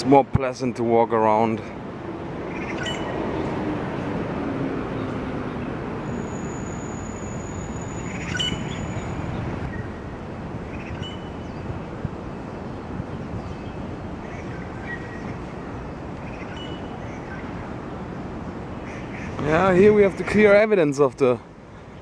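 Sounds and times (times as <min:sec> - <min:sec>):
city traffic rumble: 0:00.0 - 0:22.0
bird chirps: 0:02.5 - 0:03.2, 0:06.0 - 0:10.0, 0:10.7 - 0:11.7, 0:13.4 - 0:18.0.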